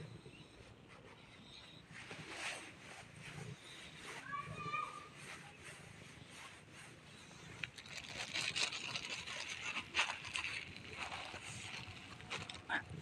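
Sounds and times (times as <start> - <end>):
hand stroking cat fur: 0.9 - 7.8.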